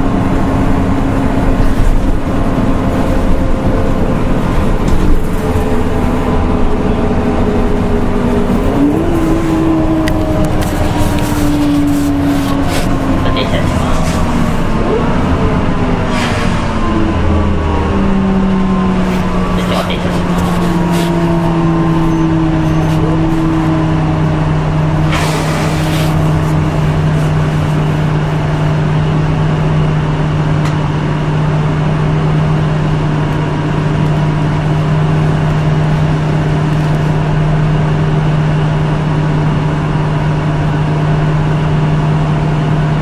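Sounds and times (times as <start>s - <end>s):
bus engine rumbling: 0.0s - 43.0s
short air hiss: 25.1s - 26.3s.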